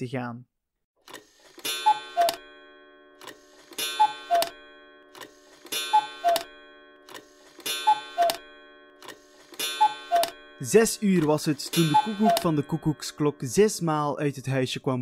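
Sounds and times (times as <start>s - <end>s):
clock mechanism clicks: 1.0s - 2.5s, 3.2s - 13.2s
cuckoo clock two-note call: 1.6s - 2.6s, 3.2s - 13.6s.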